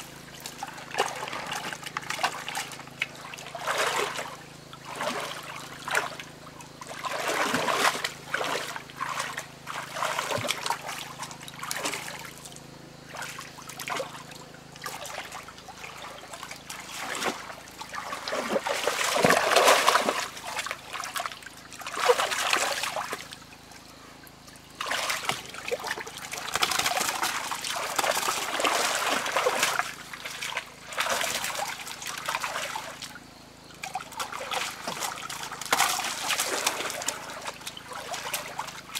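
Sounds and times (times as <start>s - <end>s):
hands splashing in shallow water: 24.8s - 32.9s.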